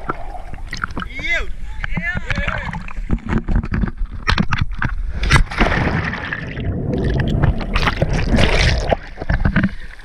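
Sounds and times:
churning gurgling water: 0.0 - 10.0
loud splash into water: 5.2 - 9.0.

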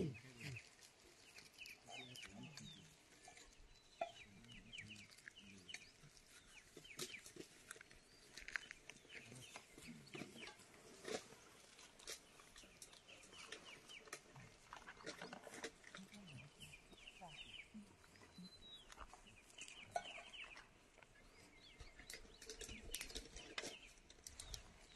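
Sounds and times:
faint bird chirping: 0.0 - 24.9.

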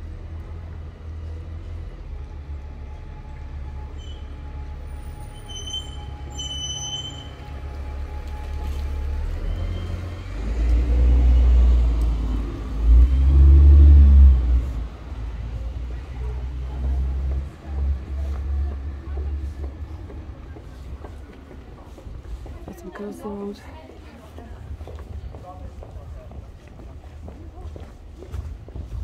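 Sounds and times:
traffic rumble: 0.0 - 29.0
high squeal: 3.9 - 7.5.

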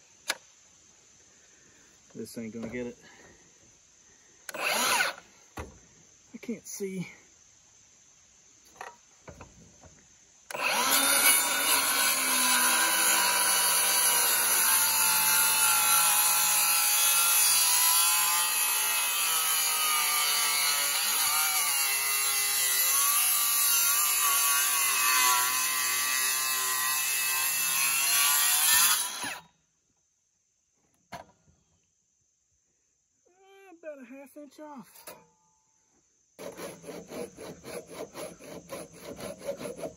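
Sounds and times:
circular saw cutting wood: 4.5 - 5.2, 10.5 - 29.4, 36.4 - 39.9.

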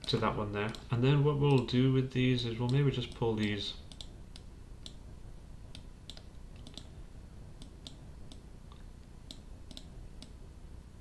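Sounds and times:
computer mouse clicking: 0.0 - 1.8, 2.6 - 5.0, 5.7 - 7.0, 7.6 - 10.4
faint low hum: 0.0 - 11.0.

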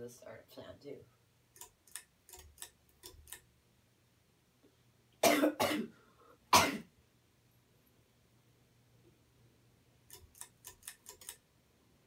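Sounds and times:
person coughing: 5.2 - 6.9.

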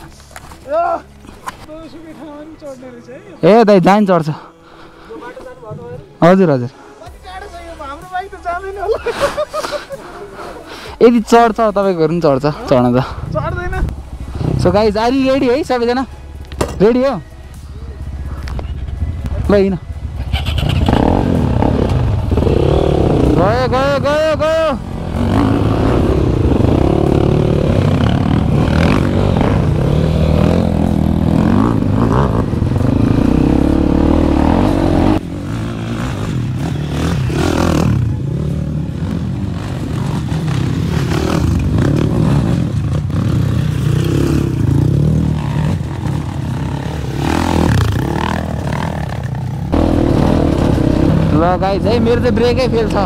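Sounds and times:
dirt bike engine revving: 18.7 - 53.0.

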